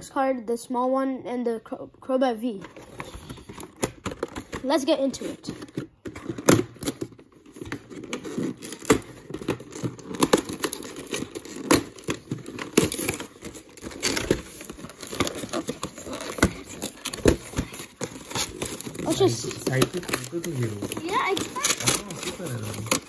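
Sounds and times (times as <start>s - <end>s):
packaging crinkling and tearing: 2.8s - 23.0s.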